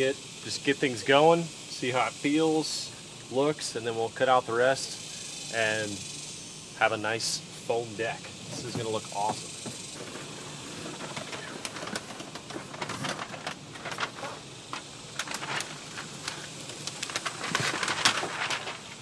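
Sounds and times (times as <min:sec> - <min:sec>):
foam sheet rustling and crinkling: 0:10.0 - 0:19.0.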